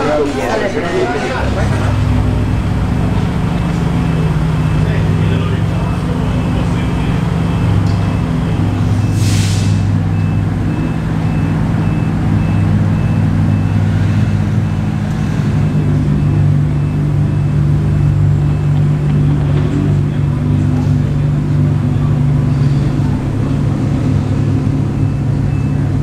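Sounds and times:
vehicle engine idling: 0:00.0 - 0:26.0
air hiss: 0:09.1 - 0:09.9.

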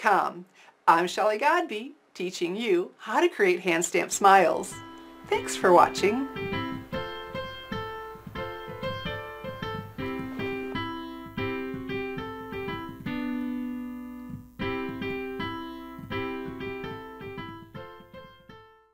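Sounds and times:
keyboard music: 0:04.7 - 0:18.9.

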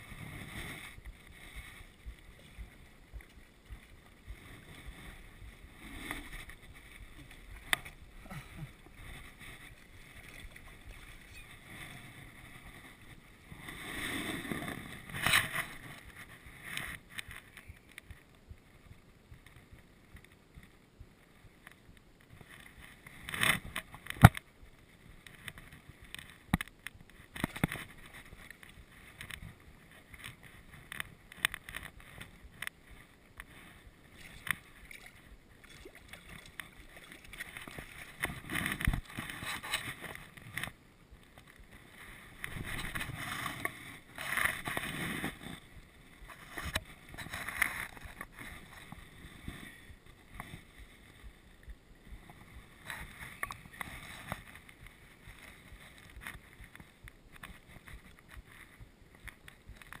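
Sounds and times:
shallow water splashing: 0:34.1 - 0:39.3.

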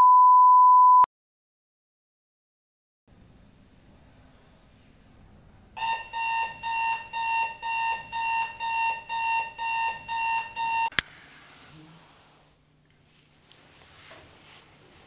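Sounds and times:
alarm clock beeping: 0:05.8 - 0:10.9.

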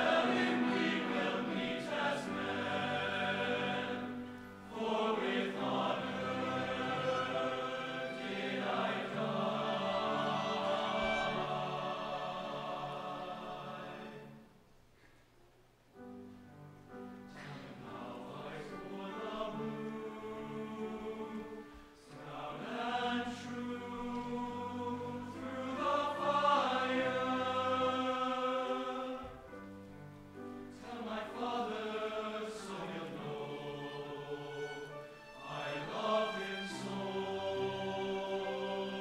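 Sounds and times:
male choir singing: 0:00.0 - 0:14.4, 0:17.4 - 0:29.4, 0:30.7 - 0:39.0
piano: 0:00.0 - 0:39.0
violin: 0:02.7 - 0:14.5, 0:32.8 - 0:39.0.

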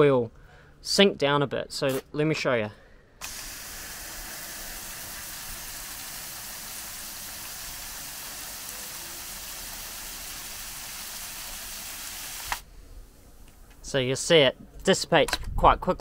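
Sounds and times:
hose nozzle spray hissing: 0:03.2 - 0:08.7, 0:09.3 - 0:12.6.

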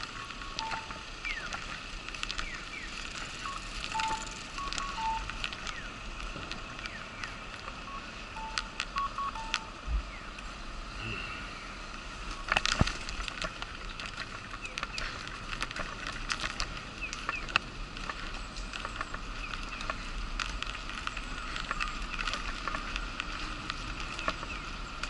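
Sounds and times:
street background: 0:00.0 - 0:25.0
crossing signal bird-call tones: 0:00.2 - 0:01.7, 0:02.3 - 0:10.6
sharp clicks: 0:00.4 - 0:09.7.

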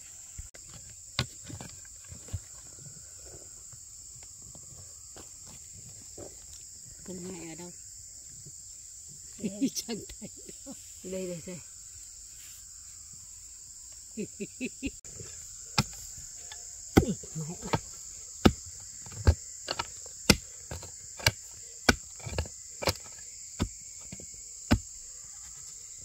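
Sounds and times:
high-pitched insect drone: 0:01.7 - 0:26.0
digging tool chopping into earth: 0:15.8 - 0:16.1, 0:16.9 - 0:24.9.

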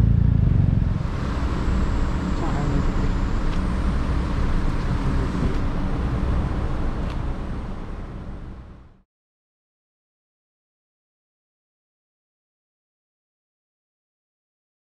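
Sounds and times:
engine rumble: 0:00.0 - 0:09.0.

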